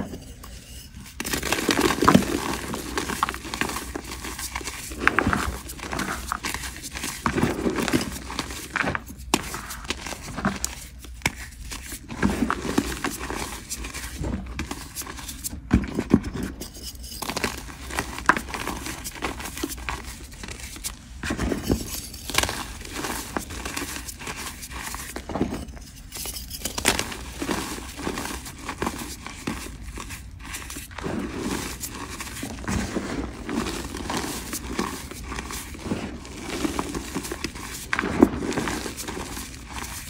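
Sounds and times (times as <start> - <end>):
hands crushing chalk chunks: 1.0 - 40.0.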